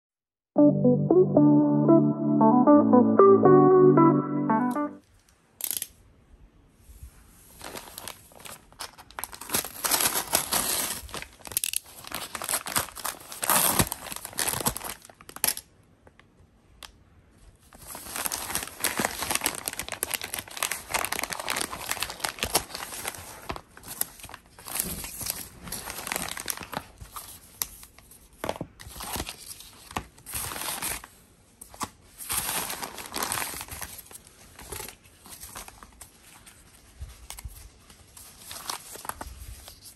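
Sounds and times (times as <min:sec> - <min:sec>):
paper mailer tearing and rustling: 0:07.6 - 0:15.6.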